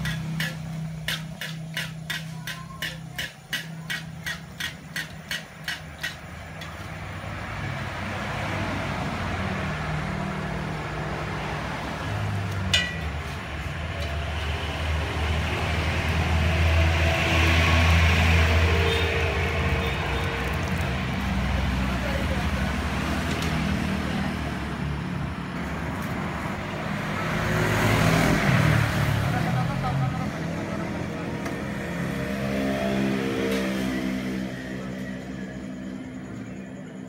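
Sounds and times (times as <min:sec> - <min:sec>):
sharp metallic taps: 0:00.0 - 0:06.8, 0:12.6 - 0:13.2.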